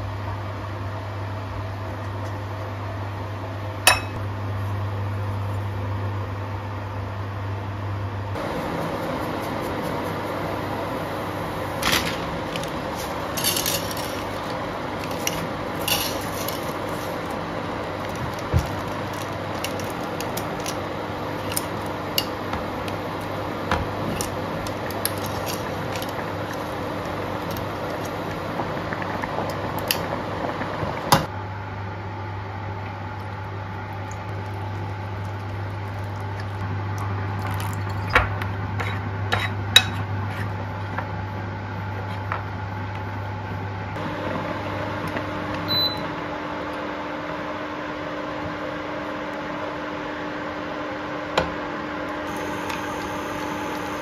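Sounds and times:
water boiling in pot: 0:08.3 - 0:31.4, 0:32.8 - 0:39.1, 0:52.2 - 0:54.0.

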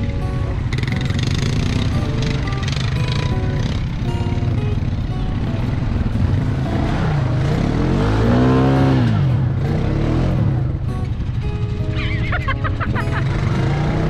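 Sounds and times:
quad bike engine revving: 0:00.0 - 0:14.0.

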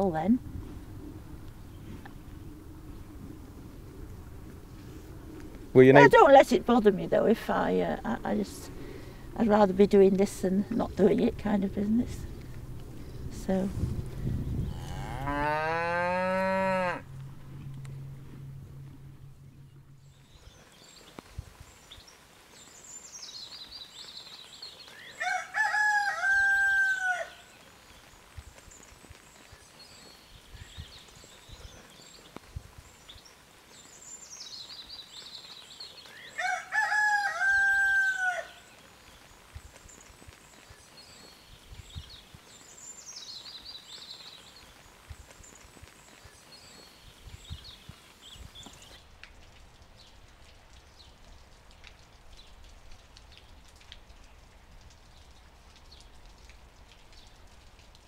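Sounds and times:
songbird singing: 0:00.0 - 0:25.4, 0:26.1 - 0:36.5, 0:37.1 - 0:57.9
rooster crowing: 0:25.2 - 0:27.5, 0:36.4 - 0:38.7.

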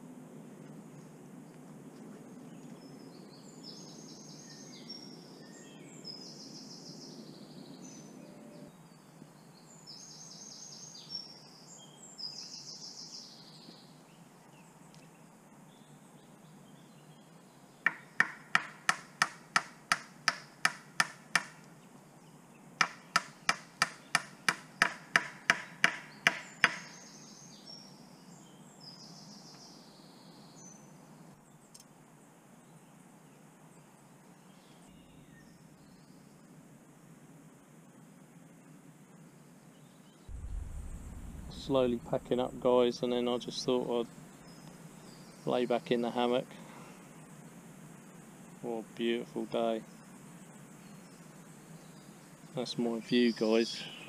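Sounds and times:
birds singing: 0:02.3 - 0:36.5, 0:38.6 - 0:54.0
sharp evenly spaced knocks: 0:17.8 - 0:21.7, 0:22.8 - 0:26.9.

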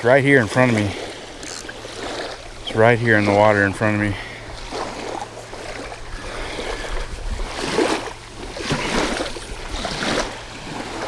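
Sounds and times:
small waves splashing on shore: 0:00.0 - 0:11.0
wind rumble on microphone: 0:04.6 - 0:11.0.

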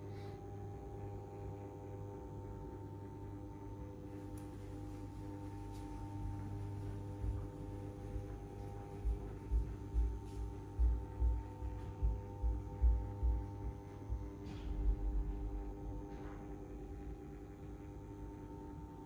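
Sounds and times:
soft low thumps: 0:05.0 - 0:16.8.

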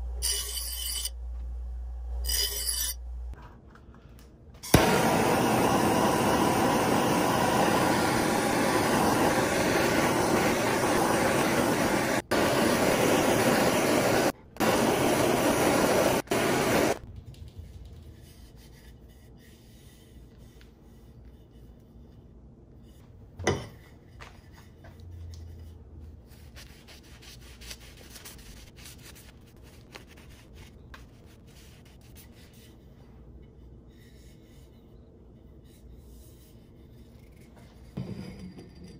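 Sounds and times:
gas torch hissing: 0:04.6 - 0:17.0.

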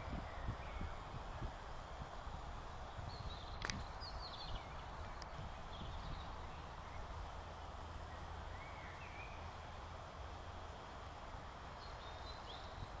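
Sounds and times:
outdoor rumble and hiss: 0:00.0 - 0:13.0
small birds chirping: 0:03.0 - 0:07.4, 0:08.0 - 0:09.6, 0:11.7 - 0:13.0.

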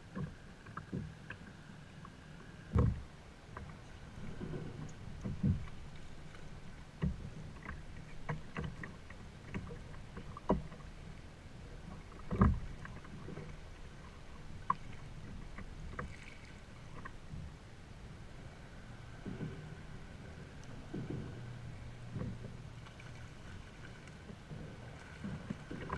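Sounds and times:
water lapping against kayak hull: 0:00.0 - 0:25.9
boat and tackle knocking: 0:02.7 - 0:10.9, 0:19.2 - 0:19.9, 0:20.6 - 0:25.9.

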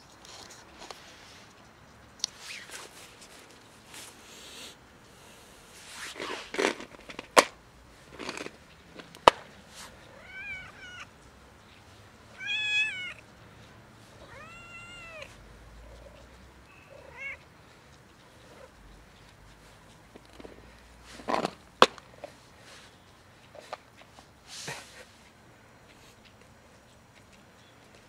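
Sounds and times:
cat meowing: 0:10.1 - 0:11.1, 0:12.3 - 0:13.2, 0:14.2 - 0:15.4, 0:16.0 - 0:17.5.

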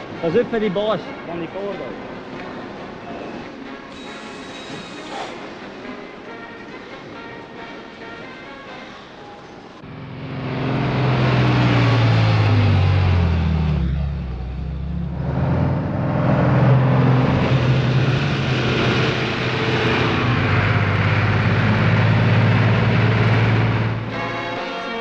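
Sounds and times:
diesel truck engine running: 0:09.8 - 0:24.2.

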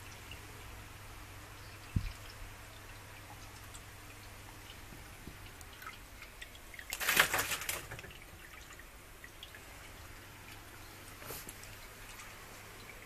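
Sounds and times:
low steady hum: 0:00.0 - 0:13.0
leaves rustling and crackling: 0:06.8 - 0:08.2.

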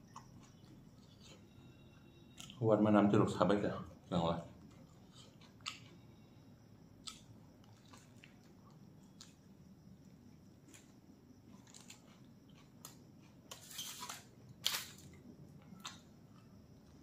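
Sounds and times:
chewing and mouth clicks: 0:00.0 - 0:01.5, 0:04.6 - 0:06.0, 0:07.0 - 0:09.4, 0:11.5 - 0:13.5.

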